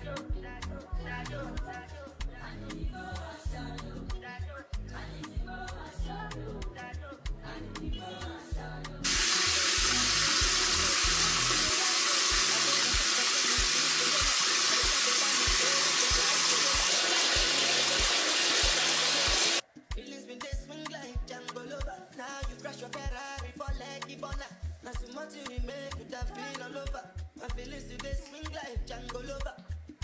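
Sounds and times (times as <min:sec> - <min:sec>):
sink tap running: 0:09.1 - 0:19.6.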